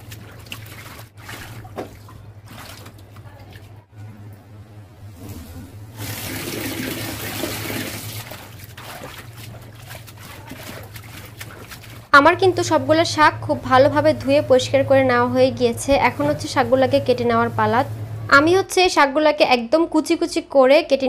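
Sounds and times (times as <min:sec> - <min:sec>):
water splashing in a metal sink: 0:00.0 - 0:03.9, 0:05.9 - 0:15.2
steady low hum: 0:00.0 - 0:19.0.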